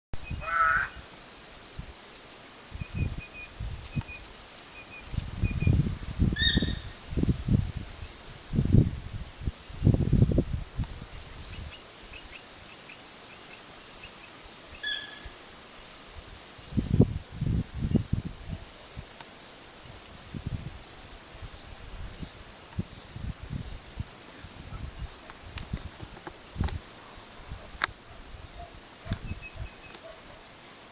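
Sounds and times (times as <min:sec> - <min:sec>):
bird call: 0:00.2 - 0:01.0, 0:06.4 - 0:07.0, 0:14.8 - 0:15.3
high-pitched insect drone: 0:00.2 - 0:30.9
bird chirps: 0:06.4 - 0:06.9, 0:11.5 - 0:15.3, 0:29.1 - 0:30.2.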